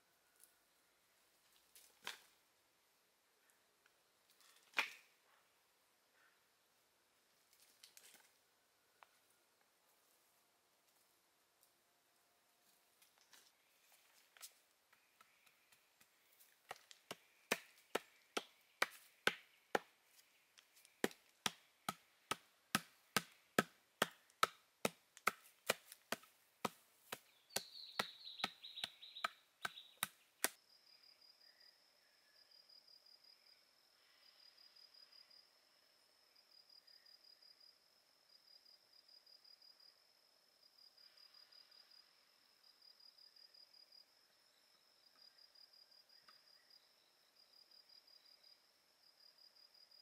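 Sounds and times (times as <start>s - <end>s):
blade chopping bamboo: 16.7s - 19.9s, 21.0s - 30.6s.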